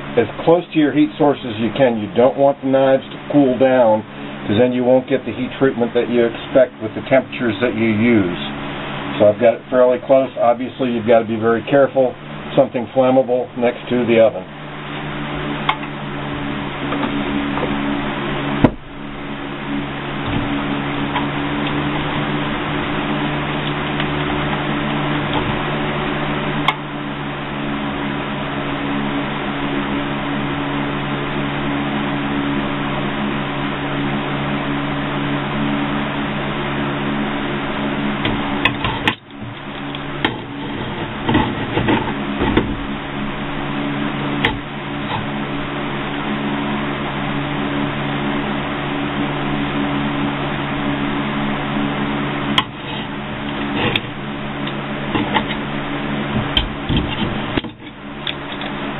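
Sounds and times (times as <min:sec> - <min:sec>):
low hum: 0:00.0 - 0:58.9.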